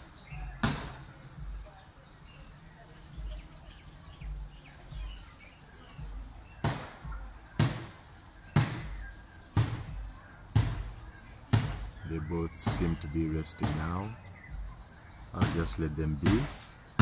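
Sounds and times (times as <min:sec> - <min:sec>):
faint bird chirps: 0:00.0 - 0:17.0
steady thumps and knocks: 0:00.4 - 0:01.7, 0:06.0 - 0:17.0.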